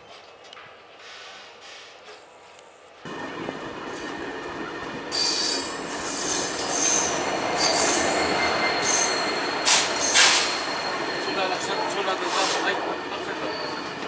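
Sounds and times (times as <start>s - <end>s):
train rumbling: 3.0s - 14.0s
train wheels squealing on rails: 3.9s - 14.0s.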